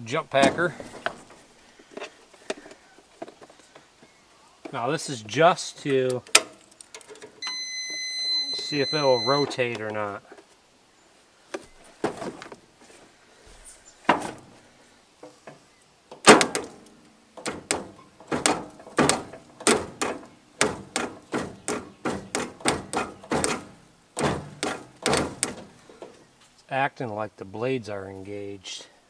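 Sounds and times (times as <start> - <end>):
electric starter clunking: 16.1 - 26.1.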